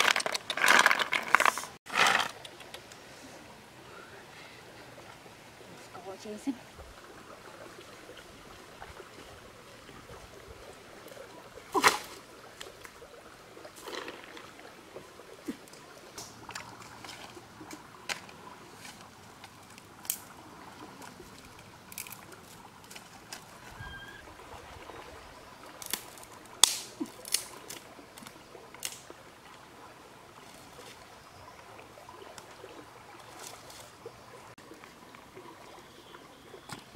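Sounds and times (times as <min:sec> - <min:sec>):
water trickling: 0:02.4 - 0:36.9
dry branches snapping: 0:18.1 - 0:20.3, 0:21.4 - 0:23.5, 0:25.8 - 0:29.0.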